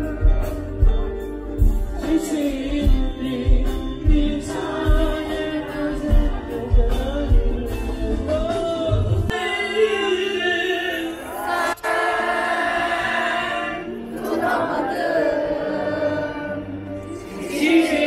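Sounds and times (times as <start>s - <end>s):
person singing: 0.0s - 12.1s
crowd singing along: 0.0s - 18.0s
loud amplified music: 0.0s - 18.0s.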